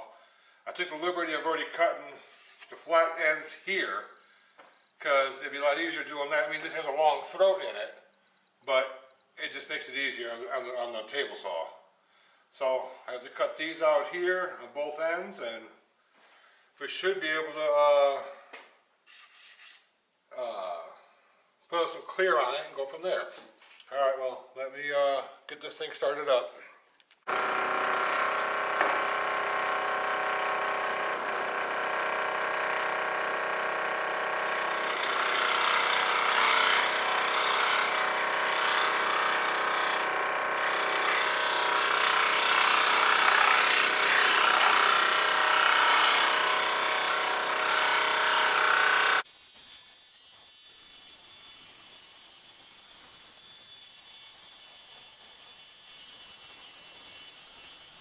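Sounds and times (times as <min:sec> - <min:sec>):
scroll saw cutting wood: 0:27.3 - 0:58.0.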